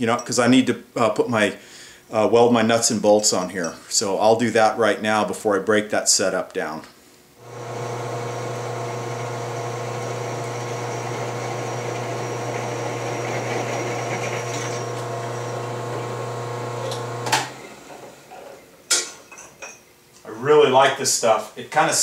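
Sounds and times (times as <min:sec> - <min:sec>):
drill press motor humming: 0:07.4 - 0:18.5.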